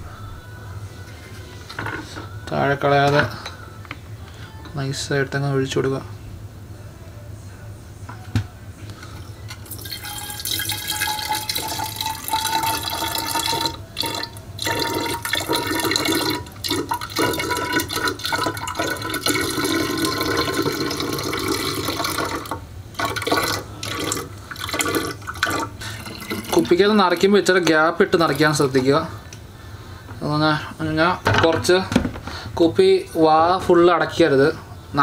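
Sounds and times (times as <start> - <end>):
rising tone of filling bottle: 9.6 - 26.8
liquid pouring into bottle: 9.6 - 27.3.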